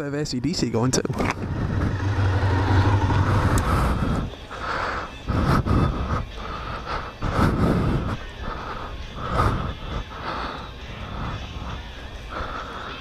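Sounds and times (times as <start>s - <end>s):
wind buffeting microphone: 1.1s - 4.6s
motorcycle engine running: 1.3s - 4.3s.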